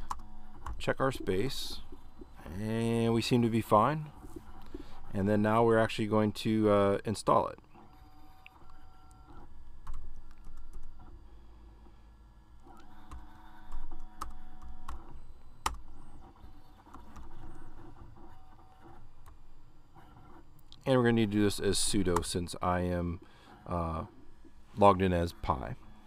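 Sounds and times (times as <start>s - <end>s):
computer keyboard typing: 0.0s - 2.9s, 13.1s - 15.8s.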